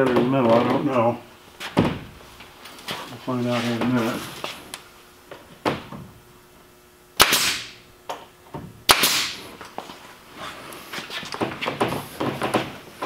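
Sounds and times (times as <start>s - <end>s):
pneumatic staple gun firing: 7.2s - 7.8s, 8.9s - 9.4s.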